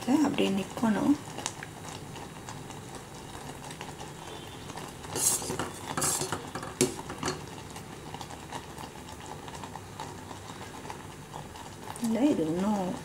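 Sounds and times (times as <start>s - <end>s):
metal utensil scraping pot: 5.0s - 7.5s.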